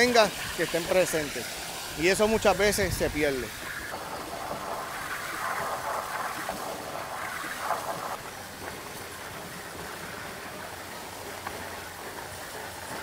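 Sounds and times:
faint outdoor hiss: 0.0 - 13.0
water gushing and splashing: 0.0 - 13.0.

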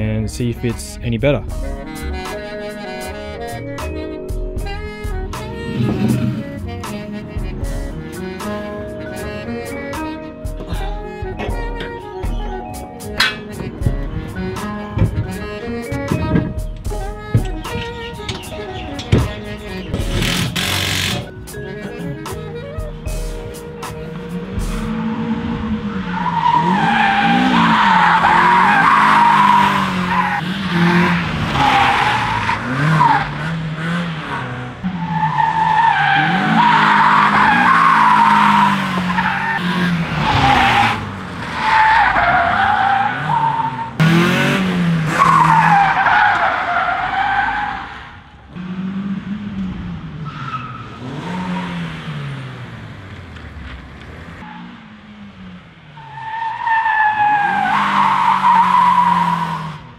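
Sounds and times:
car engine revving: 0.0 - 59.9
tyres squealing: 9.3 - 44.5, 45.1 - 48.0, 56.0 - 59.7.

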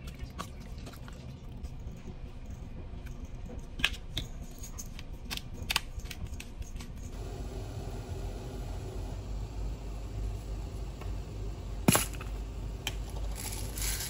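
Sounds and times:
low steady hum: 6.0 - 14.0.

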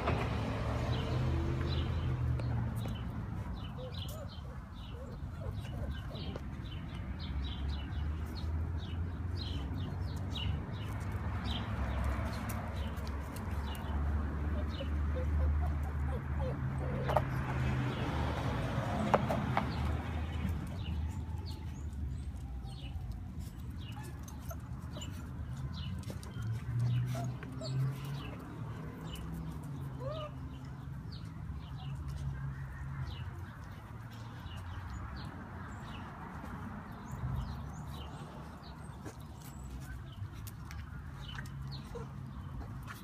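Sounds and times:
puppies grunting: 3.1 - 6.7, 13.5 - 18.1
puppy whimper: 14.5 - 17.5, 29.8 - 30.6.

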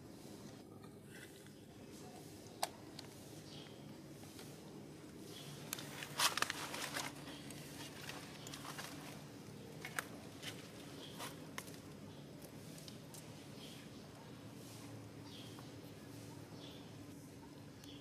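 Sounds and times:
steady low hum: 0.0 - 18.0
fern leaves rustling: 5.2 - 13.9.

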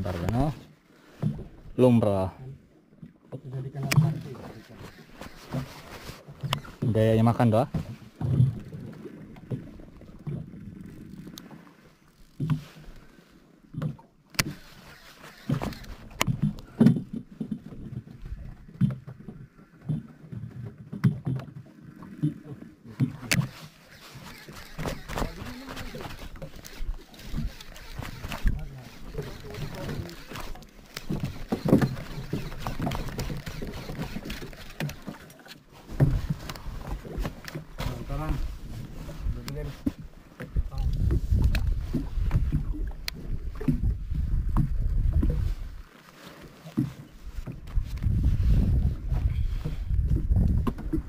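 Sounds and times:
water slapping boat hull: 0.0 - 51.0
fishing reel clicking: 3.8 - 5.7, 12.2 - 12.5, 14.3 - 16.4, 23.2 - 35.6
wind rumbling on microphone: 36.0 - 45.8, 47.3 - 51.0.

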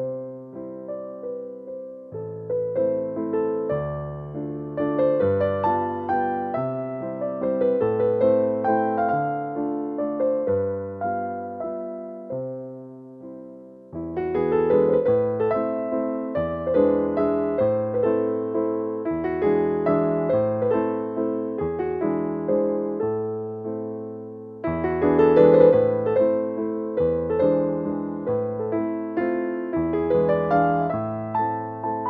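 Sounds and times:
gentle piano melody: 0.0 - 32.0.

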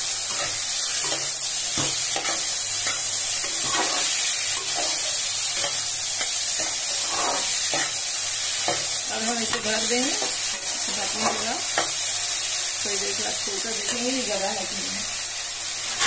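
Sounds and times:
vegetables sizzling in oil: 0.0 - 16.0
spatula scraping pan: 0.3 - 8.0.

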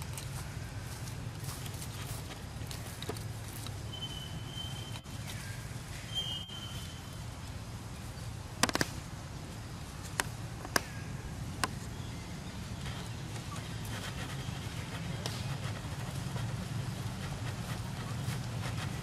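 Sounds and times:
thin high whistles: 3.8 - 5.1, 6.1 - 7.2.

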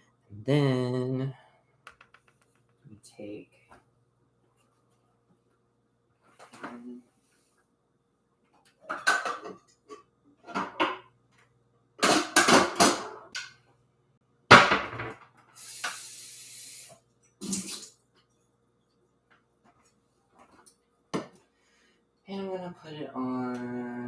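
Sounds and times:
pans and utensils clanking: 8.8 - 11.1, 12.0 - 13.4
short hiss: 15.6 - 17.9.

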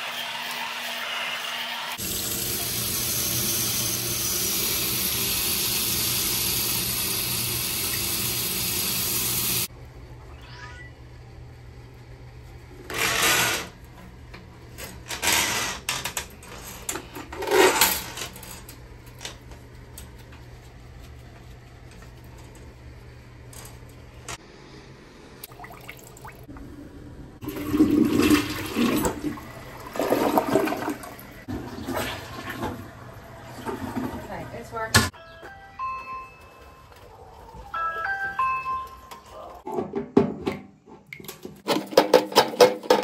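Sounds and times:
toilet flushing: 0.0 - 9.7, 25.4 - 26.6, 27.4 - 35.0.

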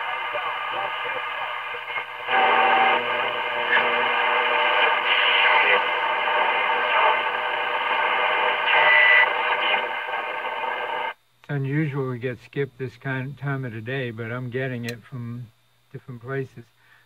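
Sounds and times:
radio whistle: 0.0 - 11.1
faint radio programme: 0.0 - 16.7
radio static and hiss: 0.0 - 16.8.

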